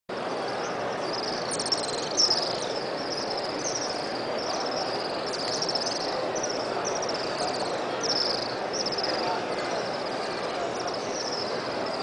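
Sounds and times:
murmur of large crowd: 0.1 - 12.0
swifts screaming: 1.0 - 12.0.

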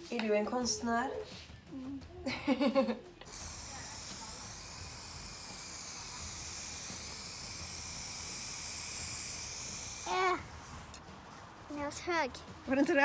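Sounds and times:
spray paint can hissing: 3.2 - 11.0.

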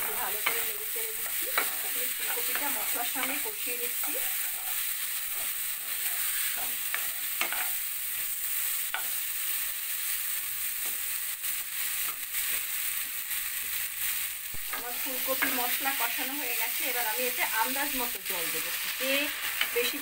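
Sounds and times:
spatula stirring and scraping: 0.0 - 9.2
vegetables sizzling in oil: 0.0 - 20.0.

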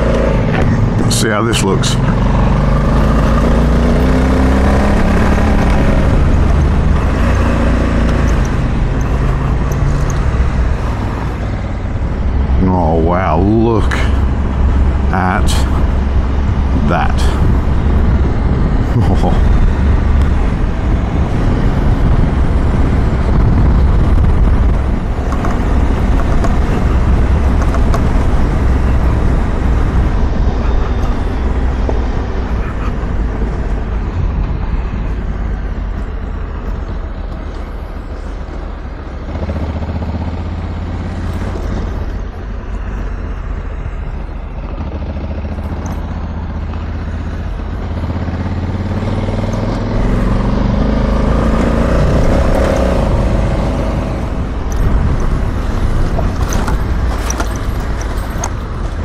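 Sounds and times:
motorcycle engine running: 14.2 - 59.0
tyre and wind noise: 15.8 - 59.0.

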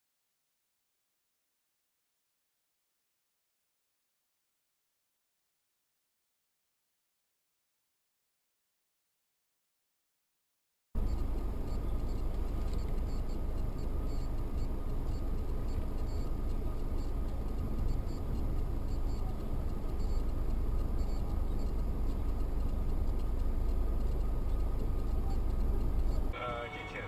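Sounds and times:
car engine rumble: 11.0 - 27.0
thin steady hum: 11.0 - 27.0
tyres on a wet road: 26.4 - 27.0.

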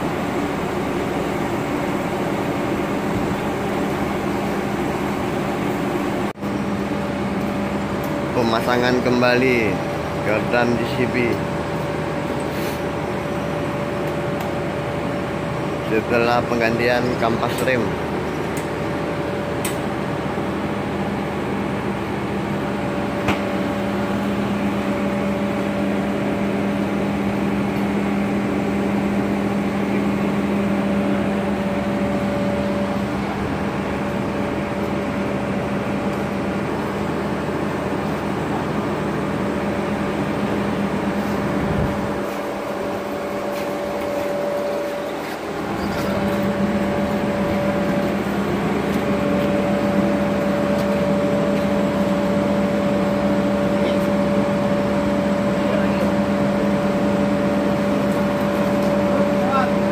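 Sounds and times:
low mechanical hum: 0.0 - 59.9
fainter higher hum tone: 22.6 - 59.9.

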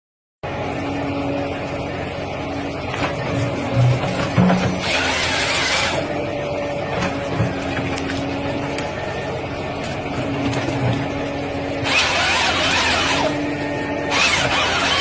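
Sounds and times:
harvester head mechanical hum: 0.4 - 15.0
chainsaw cutting: 4.8 - 6.2, 11.8 - 13.4, 14.1 - 15.0.

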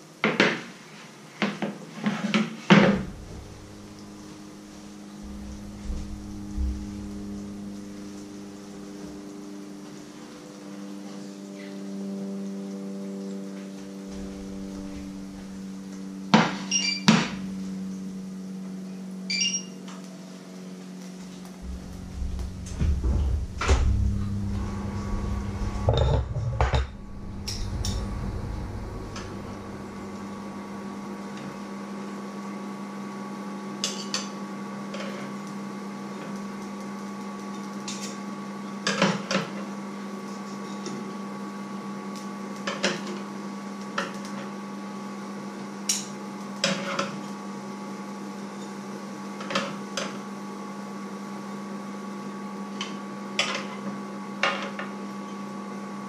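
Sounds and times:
knocks and rumble: 2.8 - 8.4, 14.1 - 15.6, 21.6 - 31.3
low hum: 2.8 - 20.6, 21.3 - 32.6.

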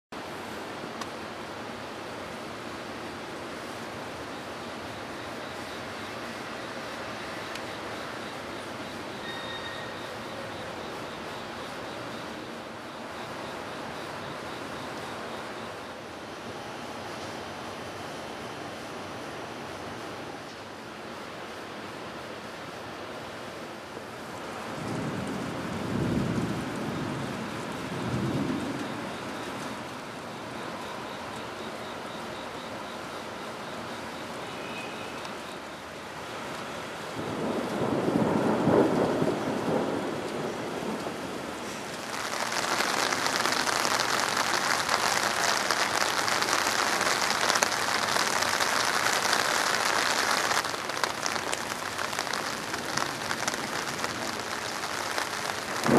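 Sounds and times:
heavy rain pouring: 0.2 - 55.9
thunder rumbling: 24.4 - 30.2, 37.1 - 55.9.

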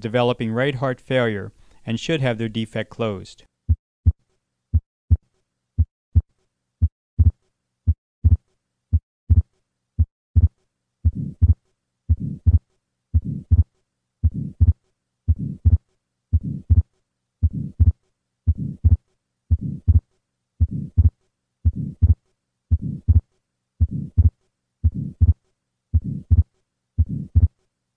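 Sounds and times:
heartbeat sounds: 3.7 - 5.2, 5.8 - 12.6, 13.2 - 23.2, 23.8 - 25.4, 26.0 - 27.6
systolic heart murmur: 5.8 - 12.6, 13.2 - 25.4, 26.0 - 27.6
split second heart sound clicks: 6.8 - 7.4, 8.2 - 9.4, 11.1 - 12.6, 16.4 - 16.8, 26.0 - 26.4.

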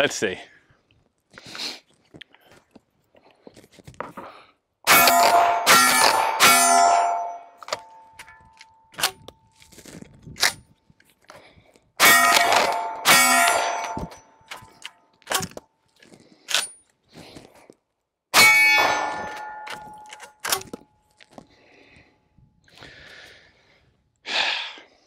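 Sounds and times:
shotgun shots: 4.9 - 7.3, 12.0 - 14.6
steel targets ringing: 4.9 - 8.5, 12.0 - 14.4, 18.4 - 20.6.

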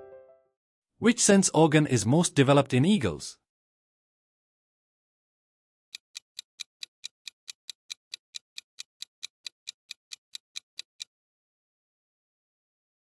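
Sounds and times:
clock ticking quickly: 6.0 - 11.1.

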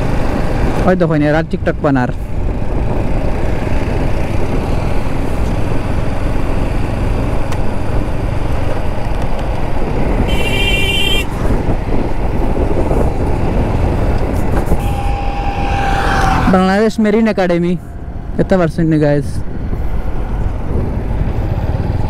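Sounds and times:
road noise: 0.0 - 22.0
wind rushing over microphone: 0.0 - 22.0
motorcycle engine: 2.2 - 22.0
vehicle horn: 10.2 - 11.4, 14.6 - 16.6.

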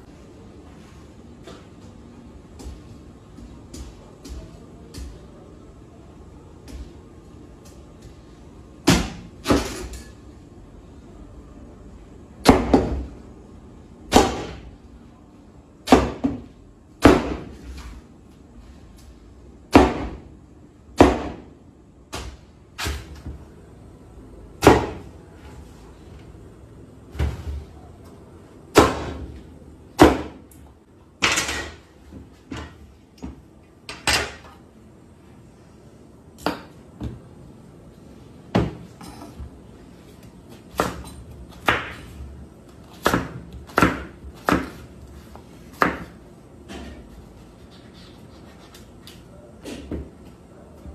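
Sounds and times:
knife chopping pumpkin on board: 42.9 - 44.8, 45.8 - 46.1.

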